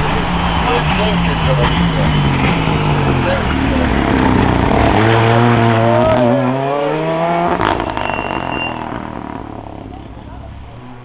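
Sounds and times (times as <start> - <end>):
car engine pulling hard: 0.0 - 11.0.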